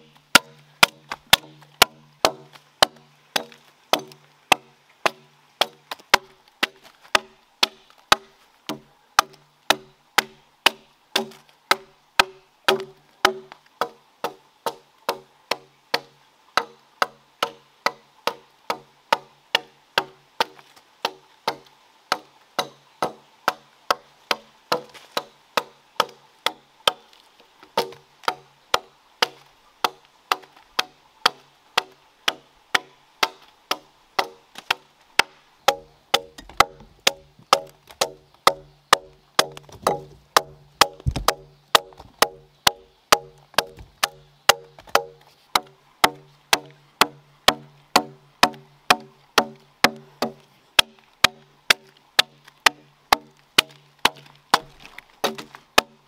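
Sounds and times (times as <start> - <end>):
blade chopping into log: 0.3 - 13.9, 34.2 - 56.0.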